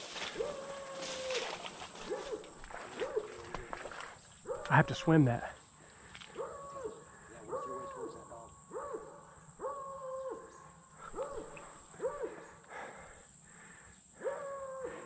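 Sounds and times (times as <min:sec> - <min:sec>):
dog baying: 0:06.3 - 0:12.8.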